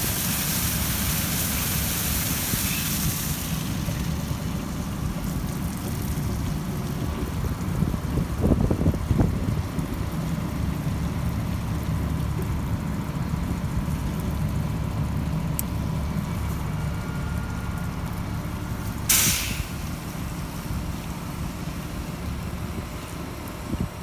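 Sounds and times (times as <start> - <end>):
air hiss: 0.0 - 3.6, 19.1 - 20.0
engine running steadily: 0.0 - 24.0.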